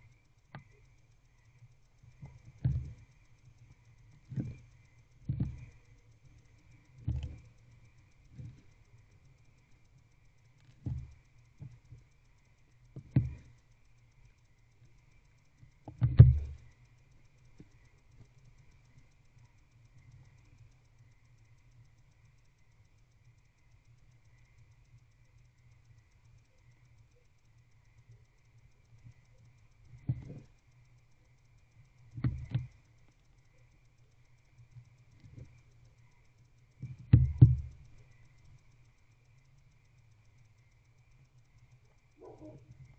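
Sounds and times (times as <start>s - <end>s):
faint electrical hum: 0.0s - 42.9s.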